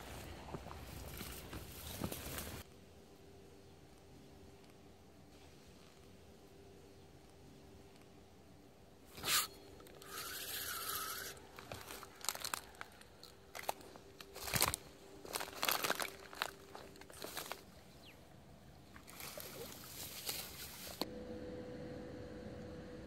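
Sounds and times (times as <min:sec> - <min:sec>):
fishing rod and reel handling: 0:09.1 - 0:17.7.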